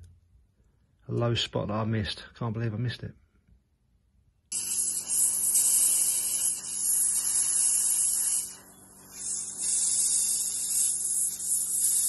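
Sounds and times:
low electric hum: 0.0s - 12.0s
airbrush spraying hiss: 4.5s - 12.0s.

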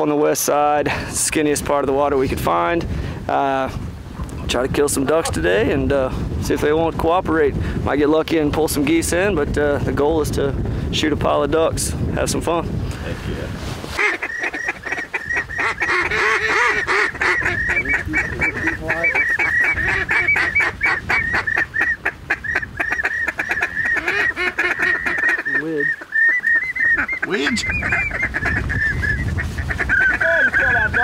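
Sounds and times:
wind rumble on microphone: 0.0s - 25.4s, 26.6s - 31.0s
geese honking: 13.9s - 31.0s
drawn-out falling goose call: 14.0s - 31.0s.

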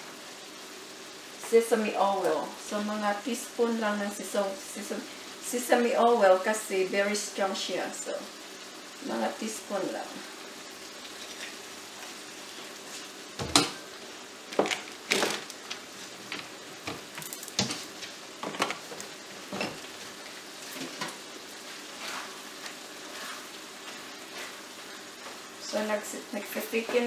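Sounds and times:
food sizzling in a skillet: 0.0s - 27.0s
utensil scraping a pan: 21.9s - 24.6s.

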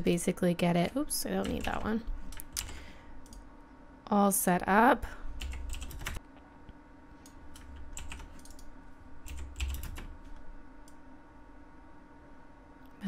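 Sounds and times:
keyboard keys clicking: 1.4s - 3.4s, 5.4s - 6.2s, 7.5s - 8.7s, 9.3s - 10.1s.

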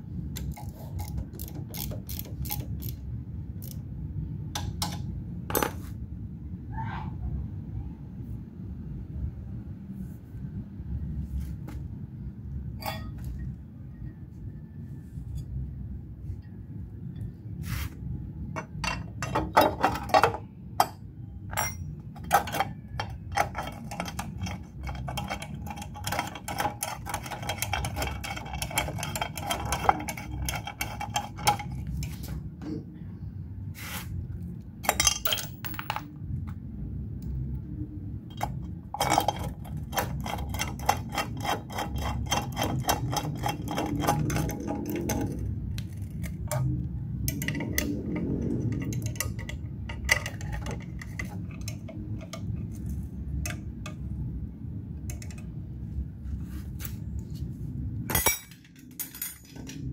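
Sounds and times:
metal tools clinking: 12.8s - 13.3s, 18.6s - 32.2s, 34.8s - 36.1s, 58.1s - 59.9s.

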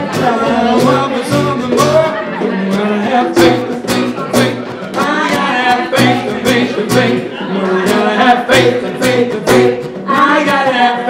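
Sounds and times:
strummed acoustic guitar: 0.0s - 11.0s
woman singing: 5.0s - 11.0s.

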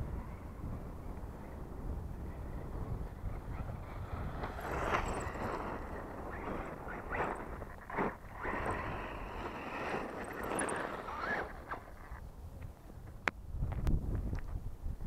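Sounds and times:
wind on microphone: 0.0s - 15.0s
electric motor whine: 3.0s - 12.2s
tyres crunching on gravel: 4.4s - 12.2s.

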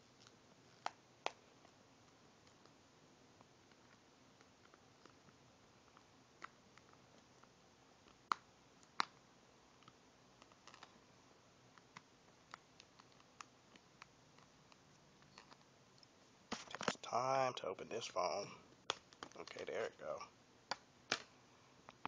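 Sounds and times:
fingers clicking and tapping phone: 3.4s - 11.0s.

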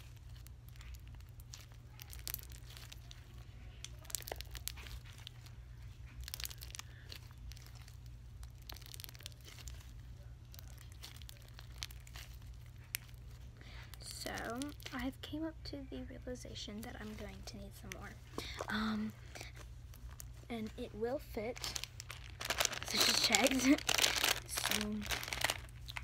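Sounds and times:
slime crackles and clicks: 0.0s - 15.1s, 21.3s - 26.0s
steady low hum: 0.0s - 26.0s.

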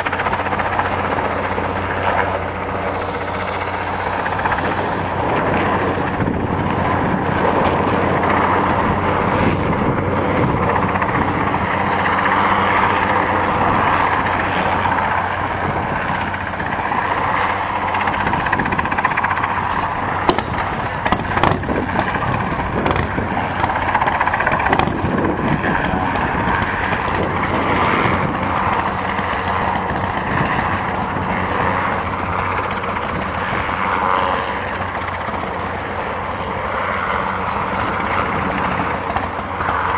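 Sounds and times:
helicopter rotor drone: 0.0s - 39.9s
sharp crackles: 19.6s - 39.9s.

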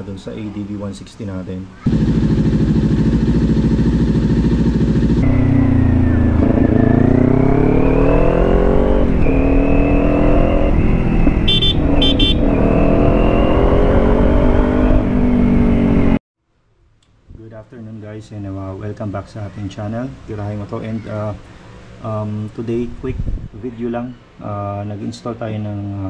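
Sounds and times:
motorcycle engine revving: 1.8s - 16.2s.

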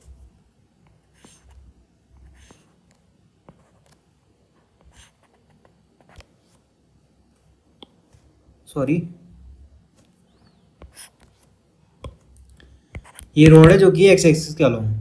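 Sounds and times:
stylus scratching on pen tablet: 0.9s - 4.0s, 4.6s - 6.6s, 10.8s - 13.4s.

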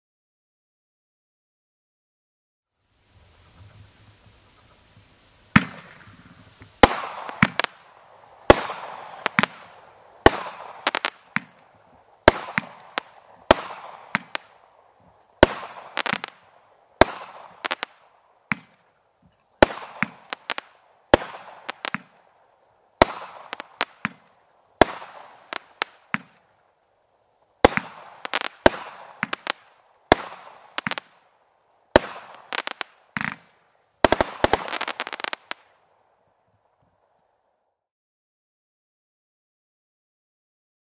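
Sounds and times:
firework bangs with crackle: 4.9s - 18.9s, 19.6s - 22.4s, 23.0s - 26.5s, 27.6s - 31.3s, 31.9s - 35.8s.

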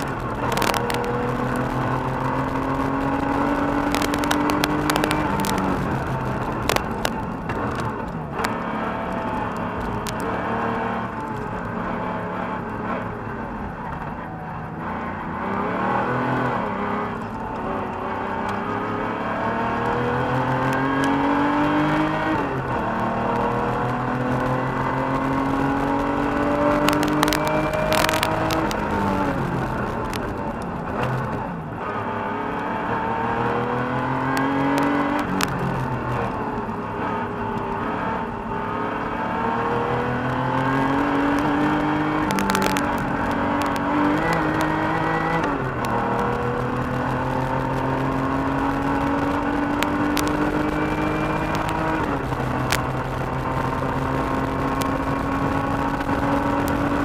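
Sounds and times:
sharp clicks: 0.0s - 8.6s, 26.2s - 31.4s, 40.7s - 47.9s, 48.8s - 57.0s
car engine revving: 0.0s - 57.0s.

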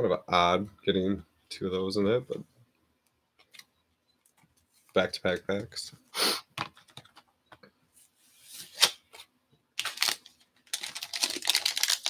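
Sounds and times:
foil wrapper crinkling: 9.8s - 12.0s.

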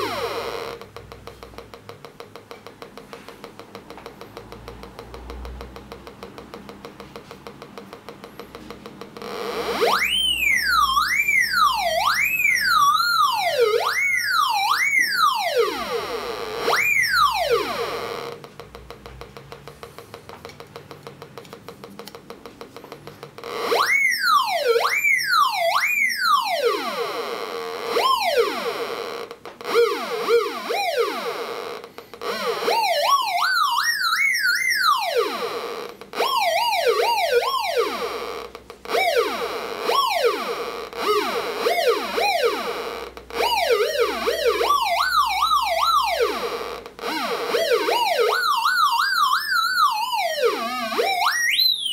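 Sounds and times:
metal detector warbling tone: 0.0s - 7.1s, 9.2s - 19.0s, 23.4s - 51.9s
faint fast ticking: 0.8s - 9.2s.

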